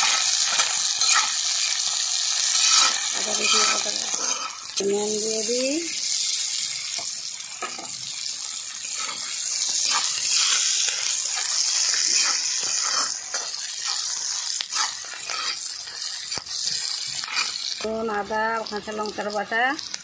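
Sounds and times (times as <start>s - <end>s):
onions sizzling in hot oil: 0.0s - 20.0s
spatula scraping and tapping pan: 2.4s - 4.6s, 8.8s - 17.8s.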